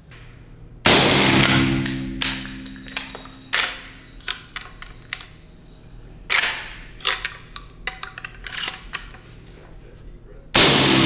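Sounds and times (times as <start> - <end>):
suppressed rifle shots: 0.9 - 2.5, 10.6 - 11.0.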